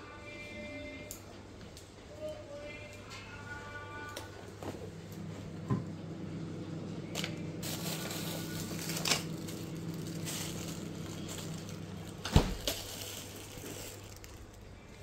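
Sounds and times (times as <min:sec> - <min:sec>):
low refrigerator hum: 0:00.0 - 0:15.0
plastic packets rustling: 0:07.1 - 0:15.0
fridge door thump: 0:12.2 - 0:12.7.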